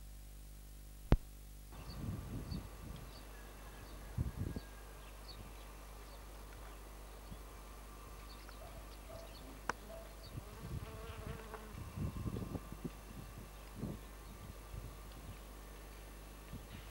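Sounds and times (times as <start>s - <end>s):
bees buzzing: 9.4s - 12.8s.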